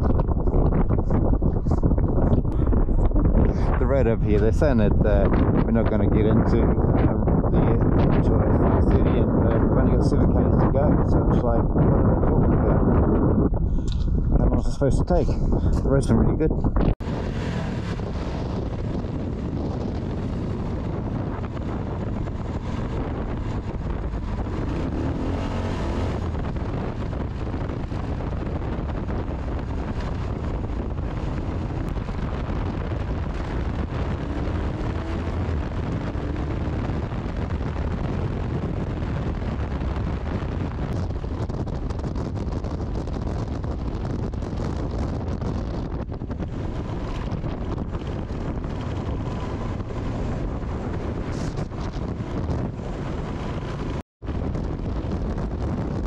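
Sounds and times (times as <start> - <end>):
wind buffeting microphone: 0.0 - 56.0
motorcycle engine running: 16.7 - 56.0.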